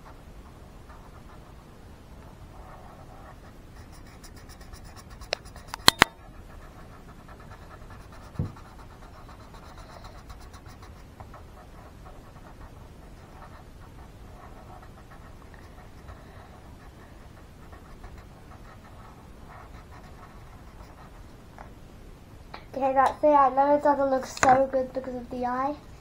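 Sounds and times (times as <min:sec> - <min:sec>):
felt-tip pen scratching on paper: 0:02.5 - 0:21.3
sharp clicks: 0:05.3 - 0:06.2.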